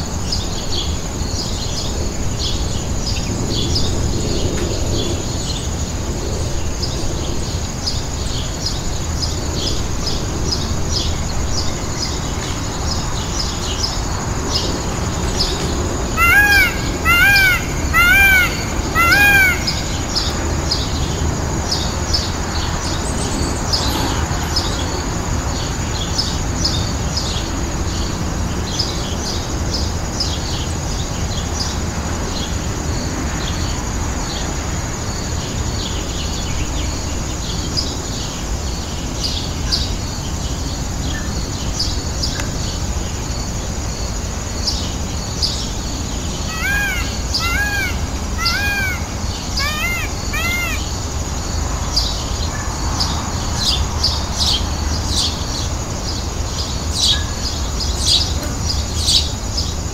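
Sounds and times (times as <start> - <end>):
small birds chirping: 7.8 - 24.0, 44.6 - 59.8
turkey yelping: 16.2 - 20.2, 46.5 - 50.8.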